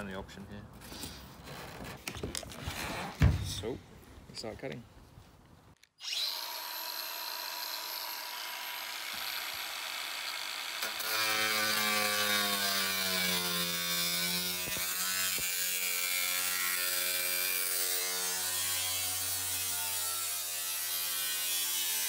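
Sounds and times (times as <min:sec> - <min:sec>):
angle grinder cutting sheet metal: 0:06.0 - 0:22.0.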